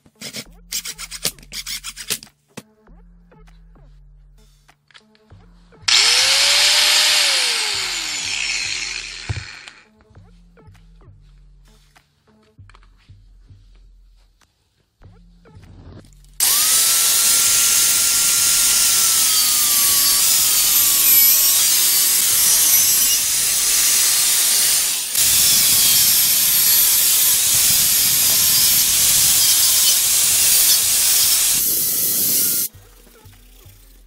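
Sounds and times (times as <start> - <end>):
angle grinder cutting: 5.9 - 9.8, 16.4 - 32.7.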